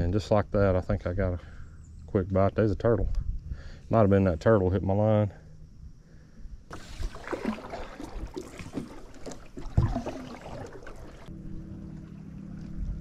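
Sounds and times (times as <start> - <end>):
low hum: 5.6 - 13.0
paddle splashing in water: 6.7 - 11.3
paddle knocks: 6.8 - 11.2.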